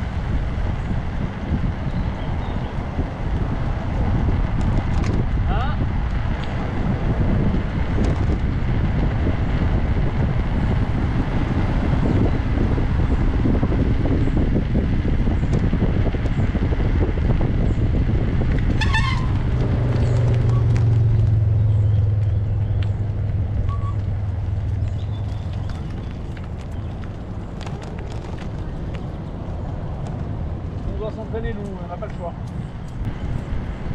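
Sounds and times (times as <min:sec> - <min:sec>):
tyre and road rumble: 0:00.0 - 0:33.9
wind on microphone: 0:00.0 - 0:33.9
high-pitched squeak: 0:18.8 - 0:19.4.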